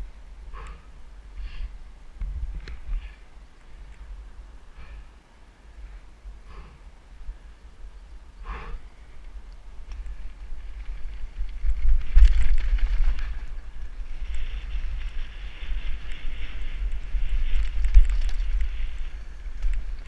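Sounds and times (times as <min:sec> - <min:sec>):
wind buffeting microphone: 0:00.0 - 0:20.0
bike clicks and rattles: 0:08.5 - 0:20.0.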